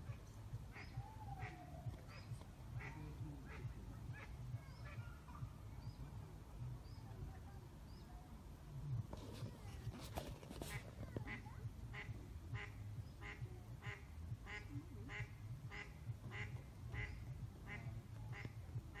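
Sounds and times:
duck quacking: 0.1s - 5.4s, 10.7s - 19.0s.

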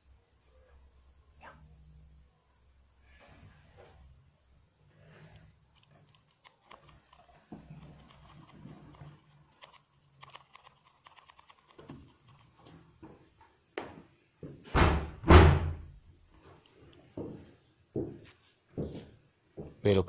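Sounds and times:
heavy thumps: 14.4s - 15.9s.

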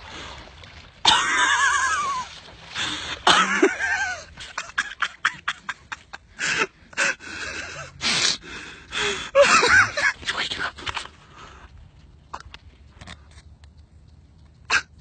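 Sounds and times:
person laughing and wheezing: 1.1s - 10.2s.

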